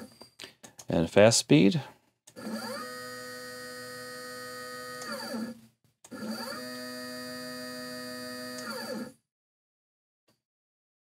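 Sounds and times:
stepper motor whine: 2.4s - 9.2s.

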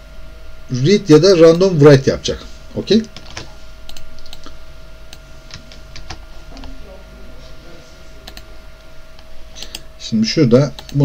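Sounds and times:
faint steady hum: 0.0s - 11.0s
computer keyboard clicks: 3.2s - 4.5s, 8.2s - 8.5s.

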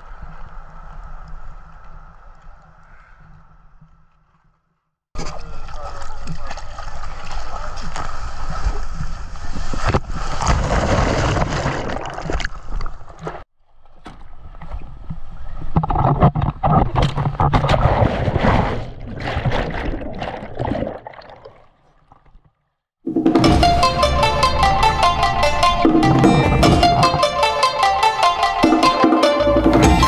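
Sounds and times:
water sloshing and splashing: 5.2s - 22.6s.

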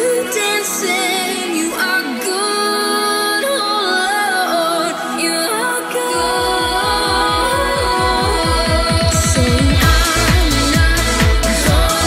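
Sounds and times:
electronic music with bass: 4.8s - 12.0s.

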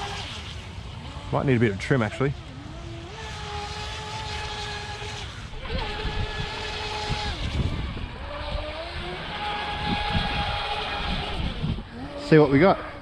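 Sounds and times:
boat motor whining: 0.0s - 13.0s.

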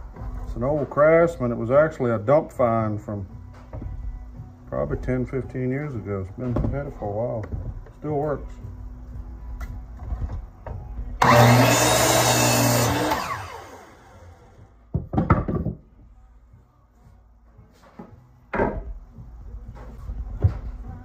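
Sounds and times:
miter saw cutting wood: 11.2s - 14.6s
saw spinning down: 11.2s - 14.6s
board knocking on bench: 14.9s - 15.8s, 18.5s - 18.9s.

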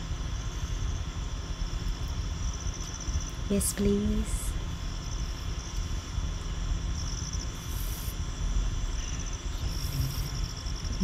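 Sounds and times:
insects chirping: 0.0s - 11.0s.

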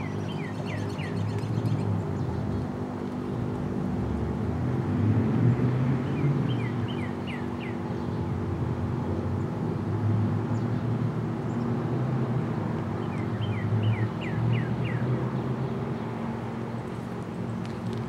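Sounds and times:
songbird whistling: 0.0s - 1.9s, 6.1s - 8.1s, 13.0s - 15.1s
road traffic drone: 0.0s - 18.0s.

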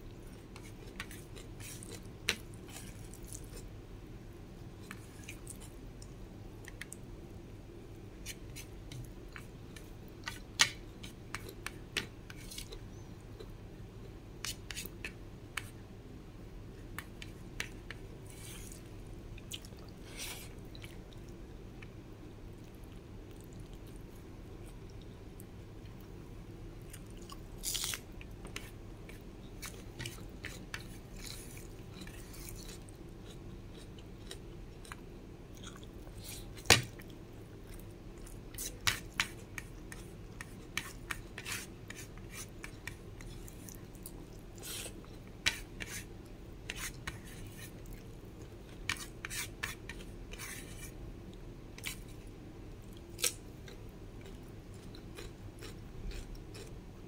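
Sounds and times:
low steady hum: 0.0s - 57.0s
chewing with wet mouth clicks: 19.4s - 20.0s, 22.6s - 24.0s, 29.6s - 36.1s, 36.9s - 38.7s, 52.8s - 56.8s.

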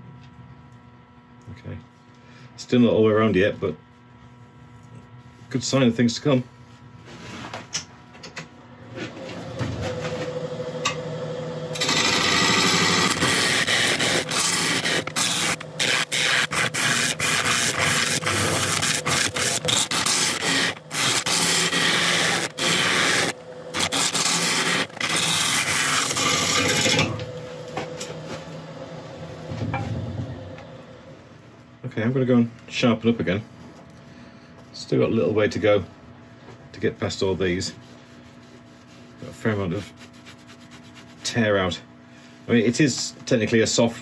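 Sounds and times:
lathe humming: 8.8s - 31.4s
gouge scraping spinning wood: 9.1s - 30.9s.

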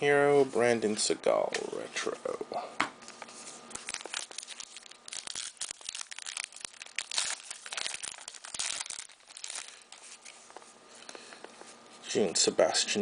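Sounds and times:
wrapper tearing and crinkling: 3.6s - 10.4s.

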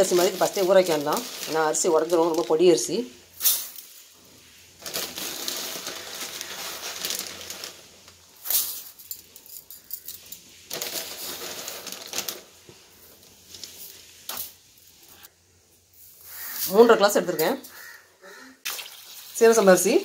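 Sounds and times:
rice grains pouring on steel: 4.7s - 8.9s.

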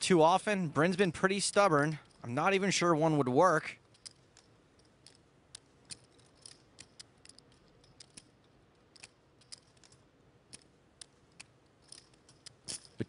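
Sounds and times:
poker chips clicking: 3.9s - 13.0s.

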